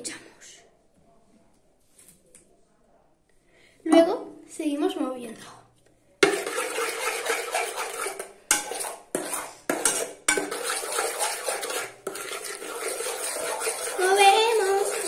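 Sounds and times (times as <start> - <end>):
spoon scraping a metal bowl: 6.2 - 15.0.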